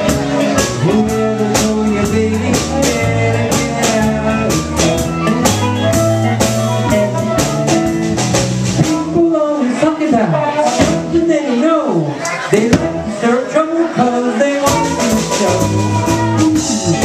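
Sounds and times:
electric guitar: 0.0s - 9.2s, 14.3s - 17.0s
drum kit beat: 0.0s - 11.3s, 12.6s - 13.2s, 14.5s - 17.0s
blues band playing: 0.0s - 17.0s.

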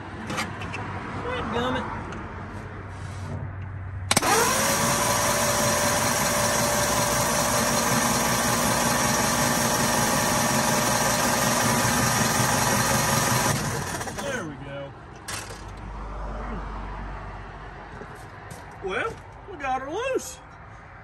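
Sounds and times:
starter cranking engine: 4.1s - 14.4s.

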